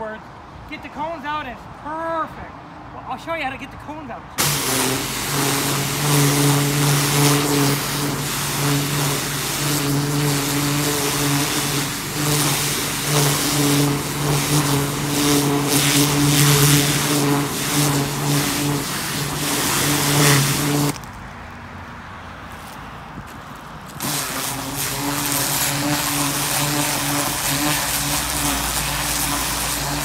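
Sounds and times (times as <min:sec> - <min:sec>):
pressure washer motor hum: 0:04.4 - 0:21.0, 0:23.9 - 0:30.0
water jet hissing and spattering: 0:04.4 - 0:21.0, 0:23.9 - 0:30.0.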